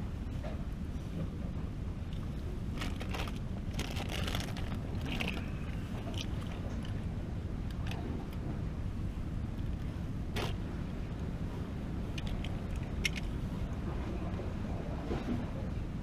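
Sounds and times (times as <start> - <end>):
wind and surf rumble: 0.0 - 16.0
fishing line crackling and rustling: 2.1 - 7.0.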